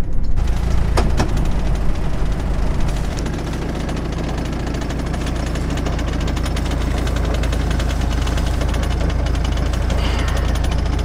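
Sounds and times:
diesel engine droning: 0.0s - 11.0s.

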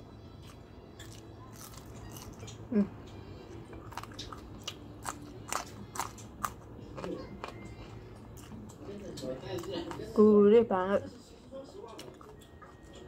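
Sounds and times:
crunching beans being chewed: 0.4s - 2.6s, 3.5s - 10.2s, 11.8s - 13.0s
person humming: 2.7s - 3.2s.

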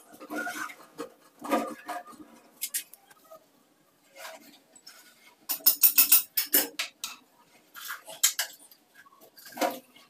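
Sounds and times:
metal fittings and tools clinking: 5.5s - 7.2s.

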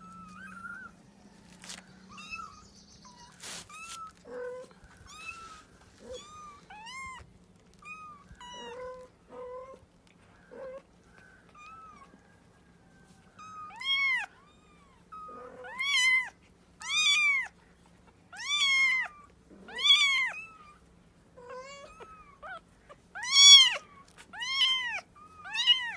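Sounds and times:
kittens mewing: 18.3s - 20.8s, 21.4s - 25.9s.

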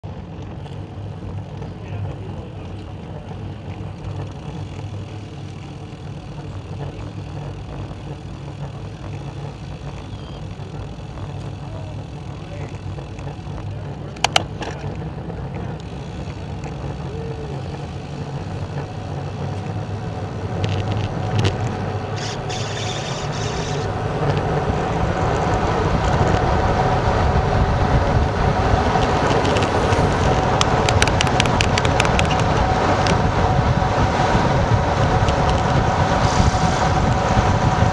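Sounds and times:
bike tyres humming on asphalt: 0.0s - 37.9s
wind rushing over microphone: 14.4s - 37.9s.

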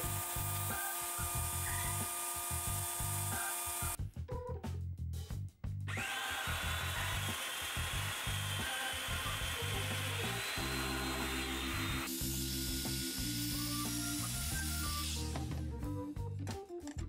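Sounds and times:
power joiner whining: 0.0s - 4.0s, 5.9s - 15.4s.

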